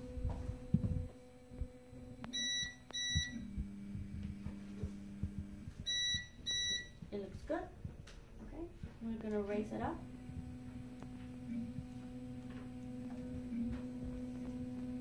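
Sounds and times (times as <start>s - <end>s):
stepper motor humming: 0.0s - 8.0s, 8.9s - 15.0s
printer beeps: 2.3s - 3.6s, 5.8s - 7.0s.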